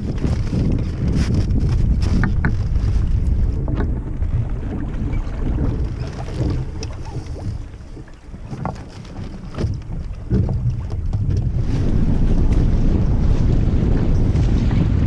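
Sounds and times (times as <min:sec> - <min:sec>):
water noise: 0:00.0 - 0:15.0
wind buffeting microphone: 0:00.0 - 0:15.0.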